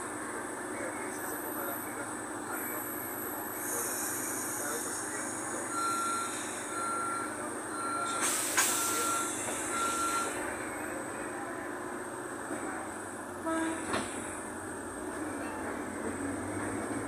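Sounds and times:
air hiss: 3.6s - 5.2s, 8.2s - 9.7s
door warning beeps: 5.7s - 10.4s
train rumble: 7.5s - 17.0s.

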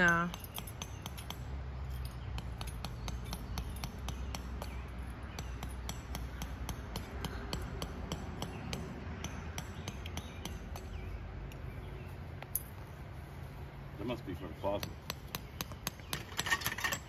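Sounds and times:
tent poles clicking and clinking: 0.0s - 6.3s, 14.6s - 17.0s.

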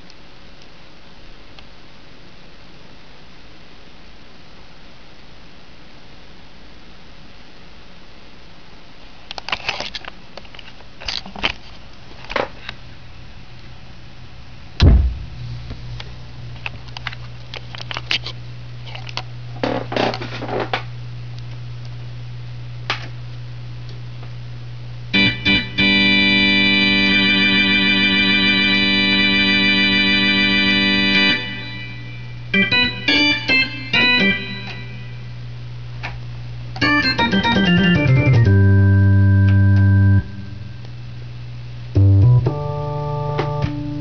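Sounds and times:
amplifier low hum: 11.9s - 44.0s
loud thump: 14.8s - 16.2s
organ chord with vibrato: 25.2s - 35.3s, 36.8s - 40.7s, 42.0s - 44.0s.

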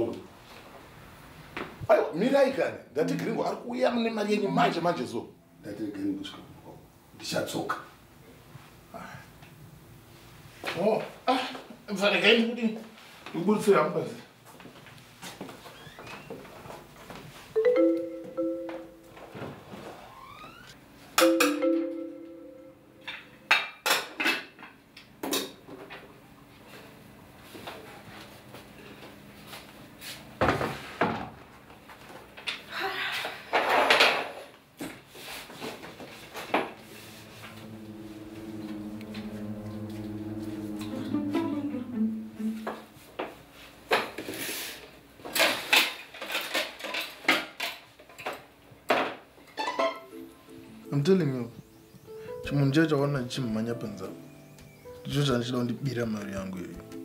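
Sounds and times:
marimba music sting: 17.6s - 19.2s, 21.2s - 23.1s, 36.8s - 42.9s
brushing sounds: 35.2s - 41.6s
pots and utensils clattering: 45.3s - 48.4s.

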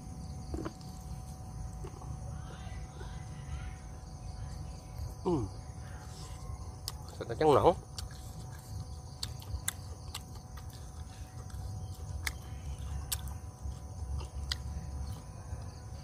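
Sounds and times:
person chewing: 7.8s - 15.3s.

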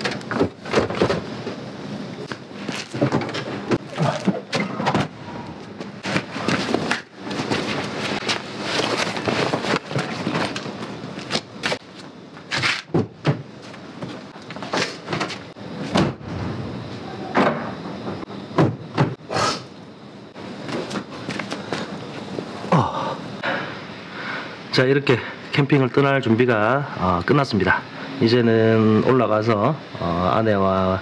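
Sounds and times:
bags rustling and thudding: 6.0s - 15.4s.

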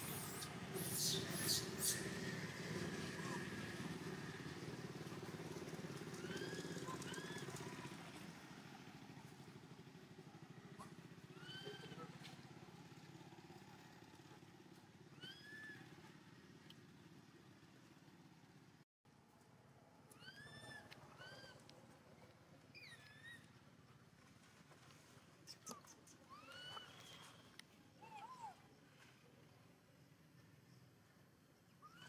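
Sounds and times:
motor vehicle engine drone: 0.0s - 11.3s.

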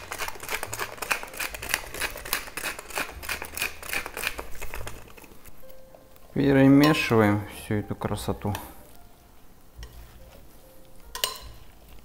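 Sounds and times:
pepper mill grinding: 0.0s - 5.6s.

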